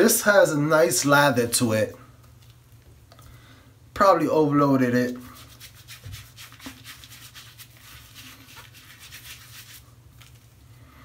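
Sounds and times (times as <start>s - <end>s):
lather crackling and squishing: 5.4s - 10.6s.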